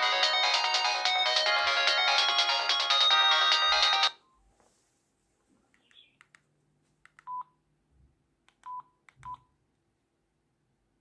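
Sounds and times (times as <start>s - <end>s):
phone ringtone: 0.0s - 4.2s.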